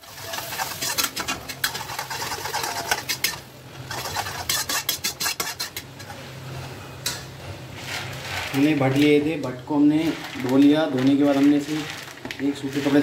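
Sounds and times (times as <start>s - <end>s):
onions sizzling in oil: 0.0s - 4.0s
metal spatula scraping a pan: 0.0s - 6.3s, 7.0s - 9.3s.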